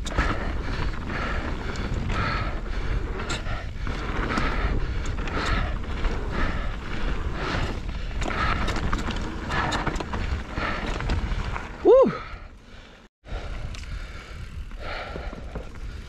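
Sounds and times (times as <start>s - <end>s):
bike rattling clicks: 0.0s - 11.8s, 13.5s - 16.0s
bike tyres rumbling on dirt: 0.0s - 16.0s
person whooping: 11.8s - 12.2s.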